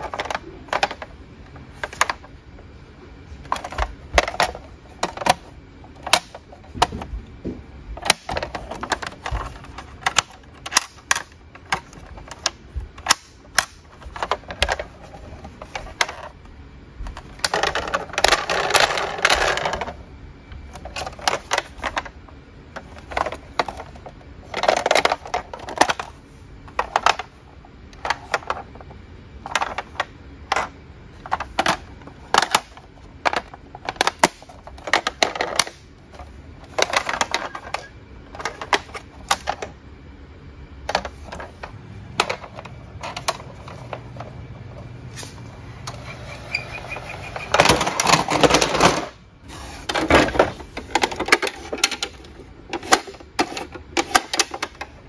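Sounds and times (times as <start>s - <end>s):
plastic toy clicks and knocks: 0.0s - 1.1s, 3.4s - 7.1s, 8.0s - 16.3s, 17.2s - 20.0s, 20.8s - 22.1s, 22.8s - 26.1s, 29.4s - 39.7s, 47.4s - 49.2s, 49.9s - 54.9s
plastic scraping rattle: 0.0s - 2.3s, 3.4s - 16.4s, 17.1s - 20.0s, 20.7s - 39.7s, 40.8s - 44.4s, 45.2s - 55.0s.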